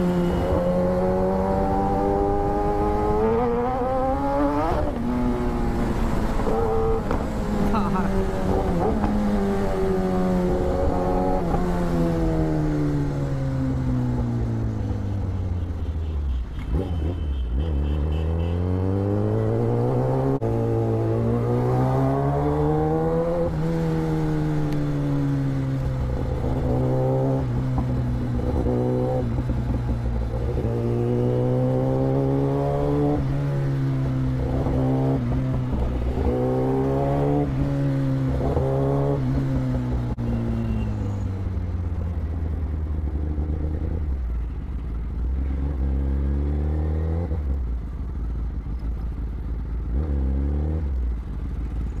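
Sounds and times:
motorcycle engine revving: 0.0 - 15.8, 16.6 - 52.0.

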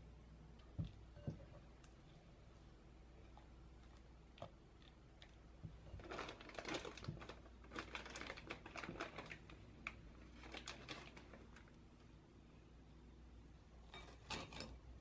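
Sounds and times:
plastic piping bag crinkling: 5.8 - 11.8.

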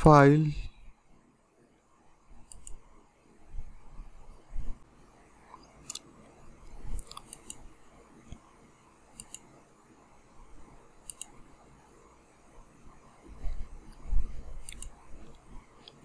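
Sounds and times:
faint room noise: 0.0 - 16.0
computer mouse button clicking: 9.2 - 9.5, 11.0 - 11.4, 14.6 - 15.0.

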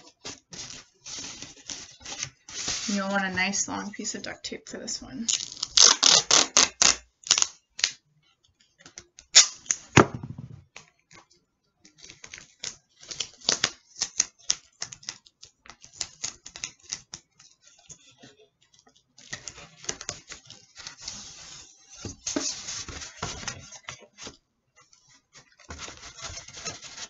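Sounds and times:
duct tape crackling off roll: 5.3 - 8.0, 9.2 - 9.9
tape ripping: 5.3 - 8.0, 9.3 - 9.8.

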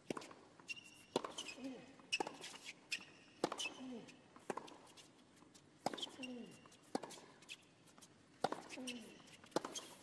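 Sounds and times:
shoe squeaks on court: 0.6 - 3.9, 6.0 - 8.0, 8.7 - 10.0
tennis ball hit with racquet: 1.1 - 1.6, 3.4 - 3.7, 4.4 - 4.9, 6.8 - 7.3, 8.4 - 10.0.

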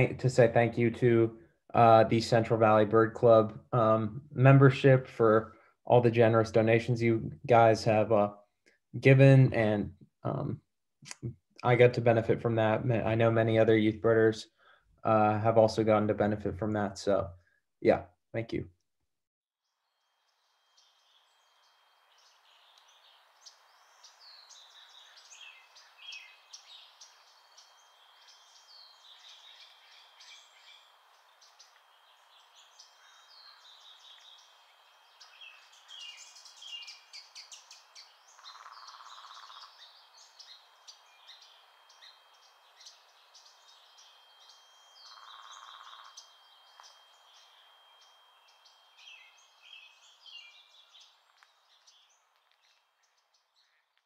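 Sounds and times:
songbirds chirping: 0.0 - 8.3, 19.7 - 54.0.

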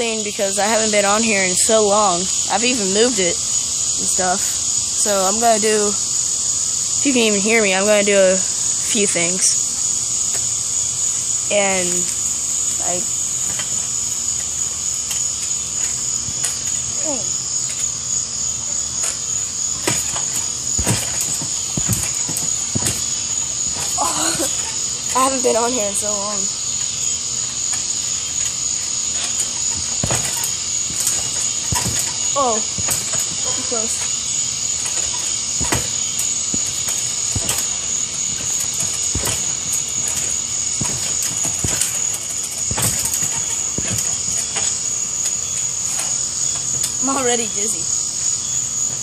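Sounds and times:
high insect drone: 0.0 - 49.0
high-pitched hum: 4.0 - 46.3
dull thuds on trampoline: 18.6 - 26.1, 27.7 - 46.3.

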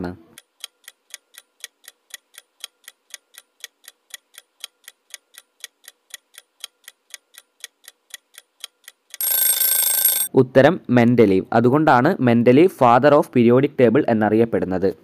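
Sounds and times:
clock ticking: 0.3 - 10.3.

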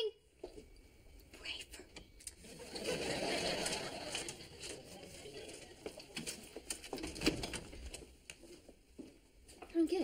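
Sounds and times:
studio audience laughing: 2.4 - 5.9.

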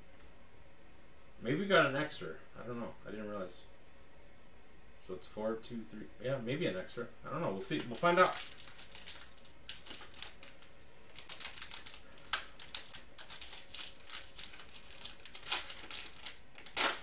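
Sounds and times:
foil wrapper crinkling: 7.6 - 17.0
foil wrapper snapping: 7.7 - 17.0.

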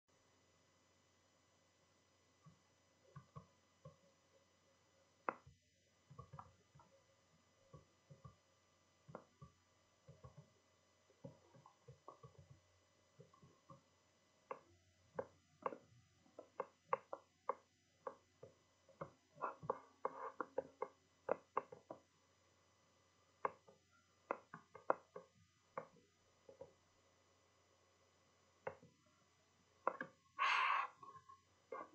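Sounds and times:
faint steady hum: 0.1 - 31.9
faint clicks and knocks: 2.3 - 4.3, 5.2 - 22.2, 23.4 - 26.9, 28.6 - 29.1.

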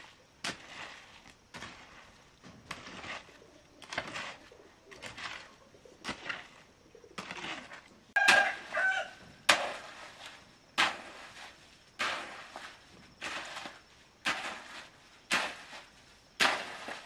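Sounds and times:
hoe scraping wet concrete: 0.0 - 17.0.

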